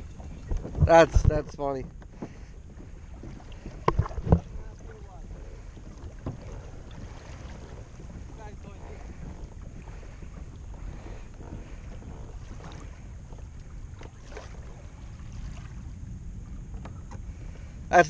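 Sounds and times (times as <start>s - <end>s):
water lapping against hull: 0.0s - 18.0s
wind buffeting microphone: 0.0s - 18.0s.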